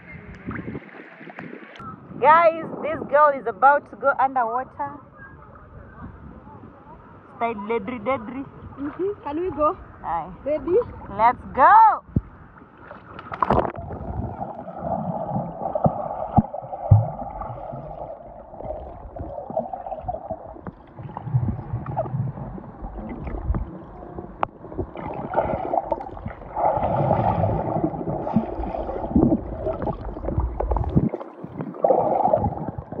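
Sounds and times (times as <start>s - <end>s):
underwater gurgling water: 0.0s - 1.8s, 12.1s - 33.0s
bubbles: 13.3s - 33.0s
soft underwater knocks: 18.6s - 22.1s, 22.9s - 26.4s.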